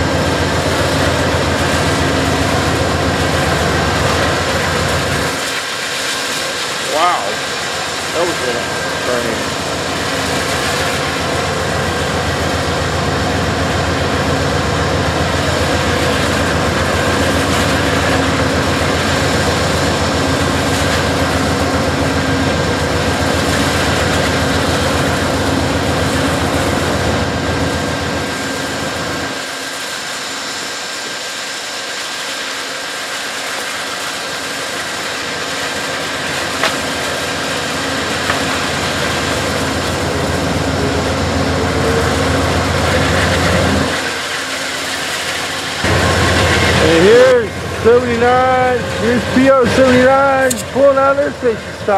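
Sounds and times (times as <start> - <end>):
diesel locomotive idling: 0.0 - 51.9
whining tones: 39.4 - 51.9.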